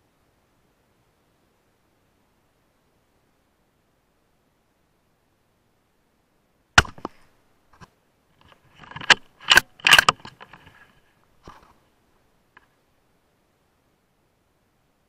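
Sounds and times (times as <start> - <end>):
suppressed rifle shot: 6.8 - 7.3
rifle bolt clicking: 8.8 - 10.5.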